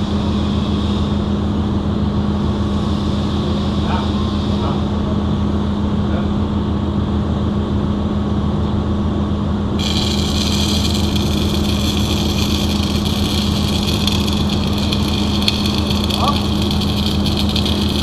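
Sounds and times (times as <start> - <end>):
machine hum: 9.6 - 18.0
welding arc crackling hiss: 9.8 - 18.0.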